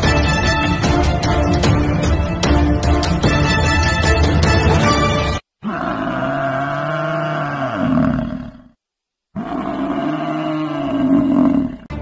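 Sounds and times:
large animal roaring: 0:05.6 - 0:08.8, 0:09.4 - 0:11.9.

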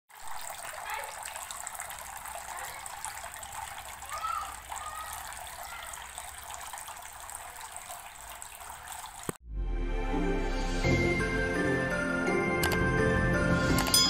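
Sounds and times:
water splashing onto stones: 0:00.1 - 0:09.4
water trickling into a tray: 0:00.1 - 0:09.4.

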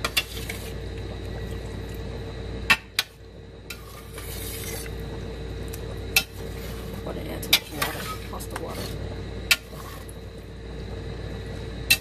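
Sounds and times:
spatula stirring in pan: 0:00.0 - 0:00.9, 0:03.0 - 0:05.2, 0:06.0 - 0:10.2
steady hum: 0:00.0 - 0:12.0.

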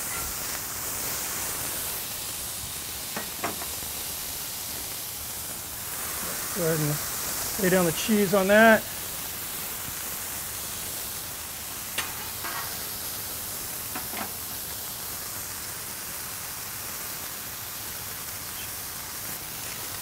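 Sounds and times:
meat sizzling on a griddle: 0:00.0 - 0:20.0
spatula scraping and tapping metal: 0:12.0 - 0:12.8, 0:14.0 - 0:14.3.

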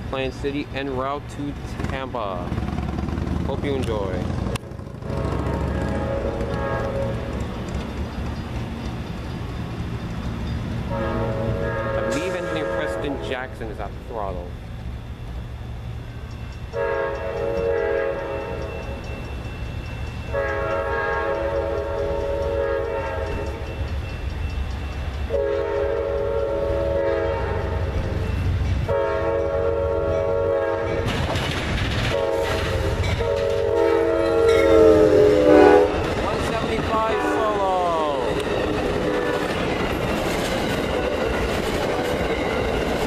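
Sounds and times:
locomotive engine rumble: 0:00.0 - 0:43.0
passing train wheel noise: 0:00.0 - 0:43.0
locomotive chime horn blasts: 0:05.0 - 0:07.4, 0:10.9 - 0:13.6, 0:16.7 - 0:19.2, 0:20.2 - 0:23.8, 0:25.3 - 0:31.1, 0:32.1 - 0:36.0, 0:37.0 - 0:38.3.

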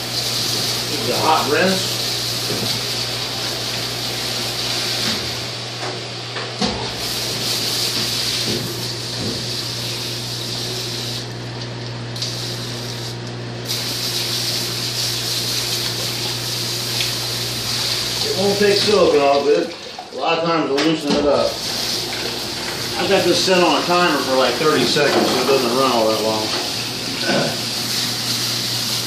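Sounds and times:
water spraying onto metal: 0:00.0 - 0:05.5, 0:07.0 - 0:11.4, 0:12.2 - 0:20.2, 0:21.4 - 0:29.0.

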